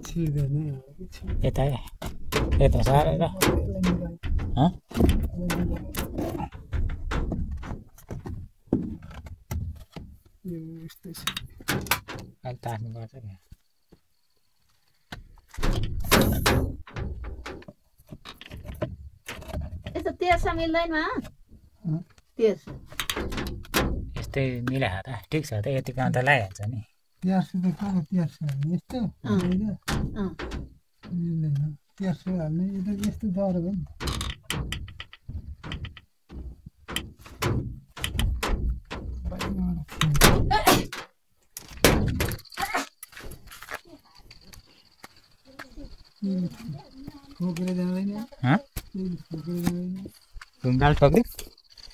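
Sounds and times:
objects knocking: 0:01.1 - 0:10.4, 0:15.1 - 0:26.4, 0:28.8 - 0:31.2, 0:32.0 - 0:44.6.

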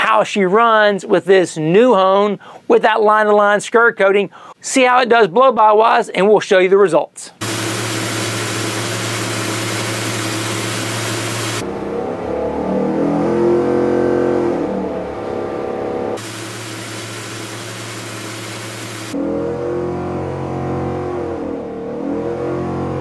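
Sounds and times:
racing engine revving: 0:07.4 - 0:23.0.

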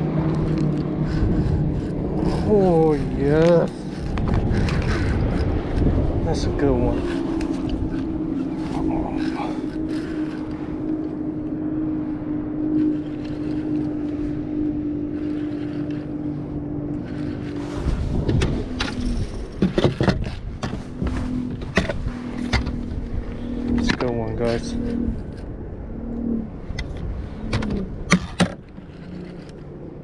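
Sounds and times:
boat motor humming: 0:00.0 - 0:30.0
sharp clicks and knocks: 0:18.2 - 0:23.0, 0:26.7 - 0:29.6.

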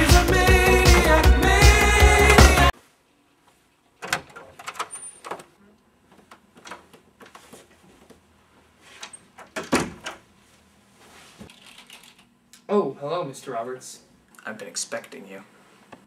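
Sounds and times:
door closing thud: 0:09.6 - 0:10.2.

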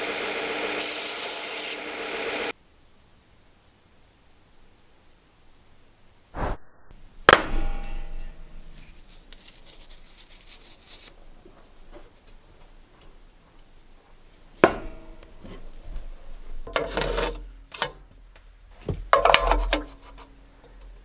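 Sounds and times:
hard knock with ringing tail: 0:07.3 - 0:08.8
paper crinkling: 0:08.8 - 0:12.3.

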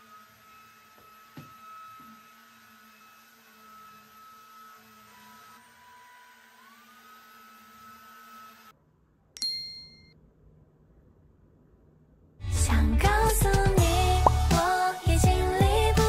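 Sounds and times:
stick vacuum cleaner whine: 0:00.0 - 0:08.7.

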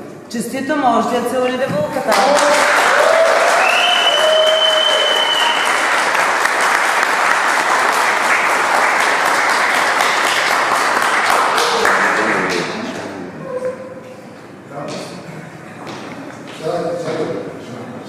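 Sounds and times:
crowd applauding in a hall: 0:02.0 - 0:13.0.

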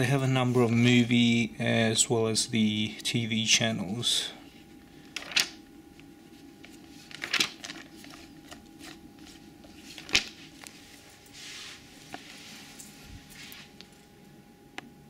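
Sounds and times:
magazine pages rustling: 0:06.3 - 0:13.8
page flicking: 0:07.0 - 0:09.0, 0:10.0 - 0:10.4.

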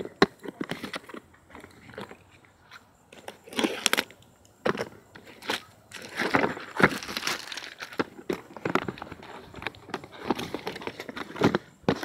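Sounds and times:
plastic wrapping crinkling: 0:05.2 - 0:12.0.

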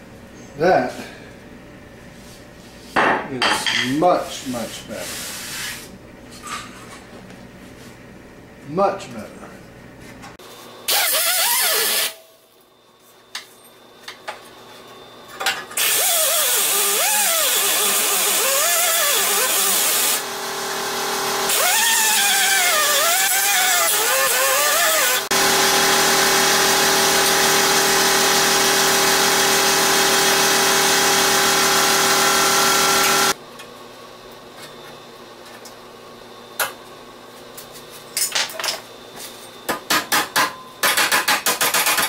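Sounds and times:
die grinder whining on metal: 0:15.8 - 0:33.4.

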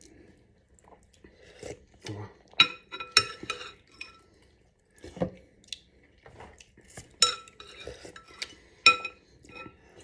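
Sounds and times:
spoons clinking against glass bowl: 0:02.6 - 0:04.2, 0:06.9 - 0:09.8.

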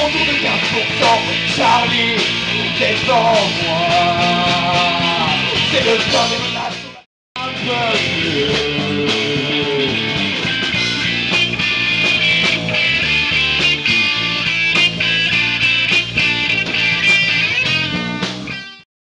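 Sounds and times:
drums: 0:00.0 - 0:18.8
electric guitars: 0:00.0 - 0:18.8.

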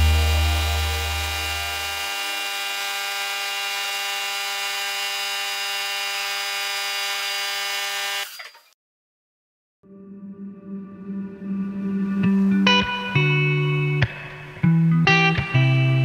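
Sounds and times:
deep low hum: 0:00.0 - 0:02.2
steady whine: 0:00.0 - 0:03.9.

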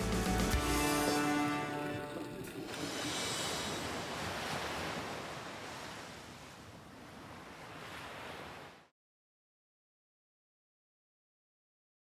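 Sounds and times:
ocean surf: 0:00.4 - 0:08.9.

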